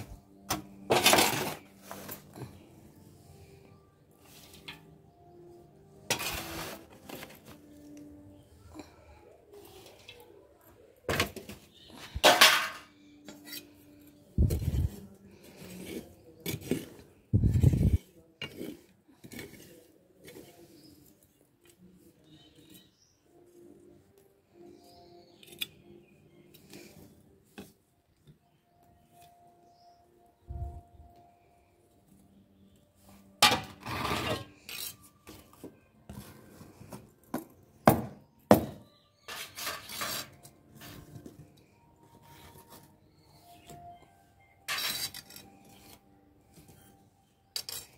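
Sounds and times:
tongs scraping through ash: 6.0s - 7.0s, 12.1s - 23.5s, 33.1s - 35.4s, 39.2s - 41.3s, 44.4s - 47.9s
metal tongs scraping and clinking: 44.6s - 46.0s, 47.5s - 47.9s.

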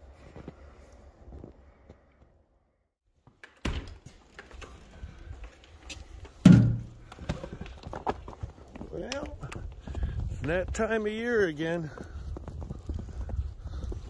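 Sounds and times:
loud thump: 6.4s - 7.0s
wind rumble on microphone: 9.3s - 11.0s, 11.9s - 14.0s.

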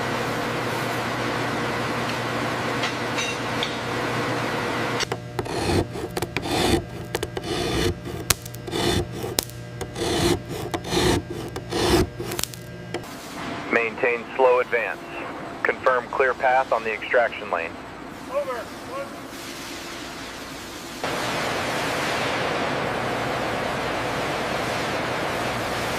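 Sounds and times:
chisel scraping hard surface: 5.0s - 13.1s.

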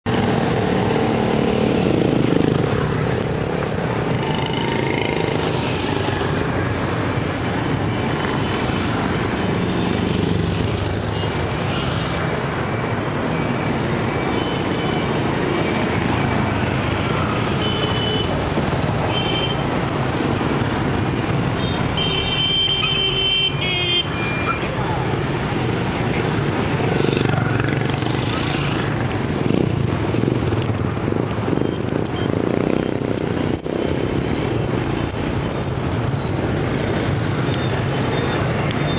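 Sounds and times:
motorcycle traffic passing: 0.1s - 38.9s.

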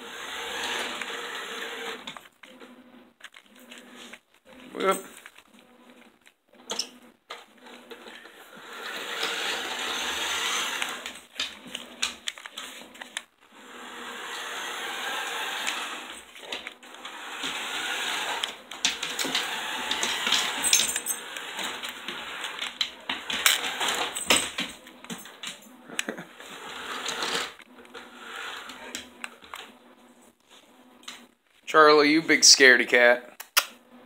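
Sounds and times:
toy car motor whirring: 0.0s - 2.2s, 8.6s - 24.3s, 26.4s - 29.6s.

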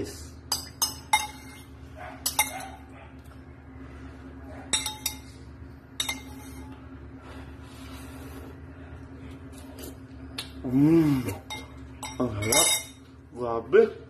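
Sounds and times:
steady low hum: 0.0s - 14.0s
metal spoon clinking against bowl: 0.5s - 2.8s, 4.7s - 5.4s, 6.0s - 6.7s, 11.4s - 13.0s.

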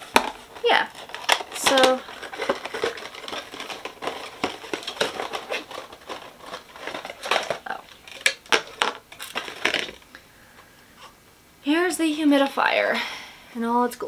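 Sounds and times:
cardboard box rustling and scraping: 0.0s - 7.7s.

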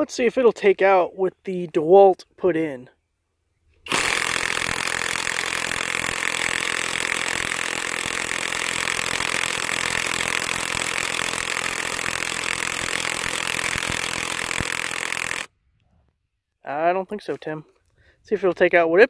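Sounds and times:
impact wrench hammering: 3.9s - 15.5s.

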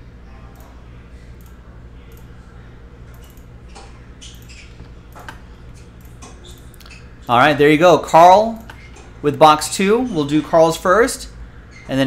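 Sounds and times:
low electrical hum: 0.0s - 12.0s
computer mouse clicks: 3.1s - 7.0s, 8.6s - 9.0s.

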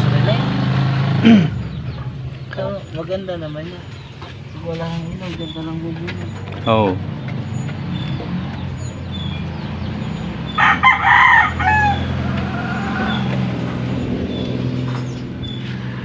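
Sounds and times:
idling engine hum: 0.0s - 16.0s
rooster crowing: 10.5s - 13.8s.

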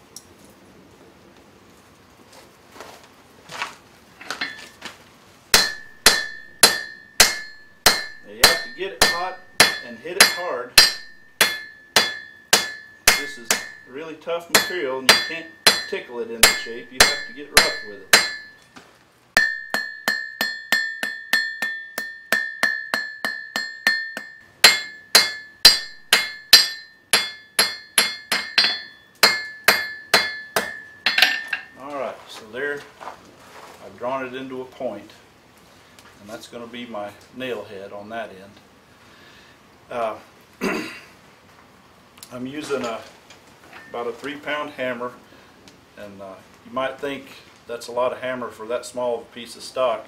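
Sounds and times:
hammer striking iron on anvil: 5.5s - 13.9s, 14.5s - 18.6s, 19.4s - 31.8s
anvil ringing: 5.6s - 18.6s, 19.4s - 31.8s.

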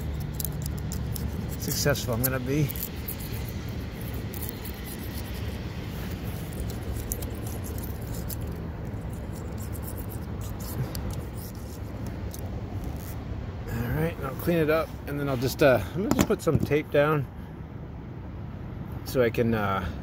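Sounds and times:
metal scraper scraping sealant: 0.0s - 11.9s
steady low rumble: 0.0s - 19.0s.

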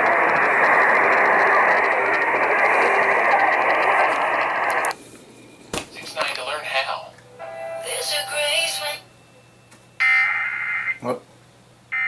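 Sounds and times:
radio static hiss: 0.0s - 5.0s, 5.9s - 7.2s.

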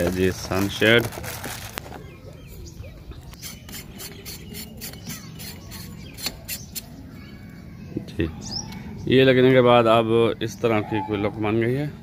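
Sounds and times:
plastic bag rustling: 0.0s - 2.2s.

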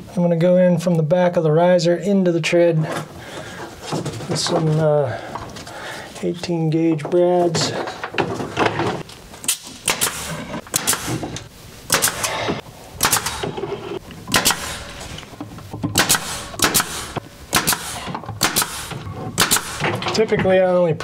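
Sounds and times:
pneumatic nailer firing: 8.6s - 13.7s, 14.3s - 15.2s, 15.8s - 20.0s.

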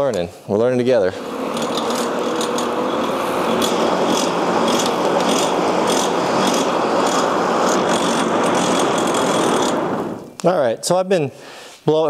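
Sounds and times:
hand-cranked blower whirring: 1.1s - 10.4s.

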